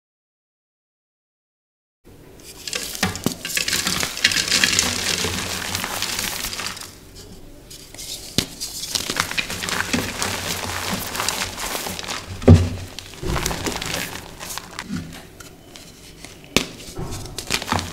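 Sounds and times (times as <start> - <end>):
hands crushing chalk: 2.5 - 7.0, 7.7 - 17.9.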